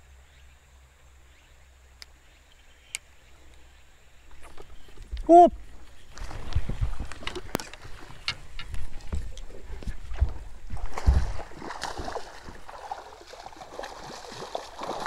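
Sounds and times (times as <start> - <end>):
fish splashing at water surface: 10.7 - 15.0.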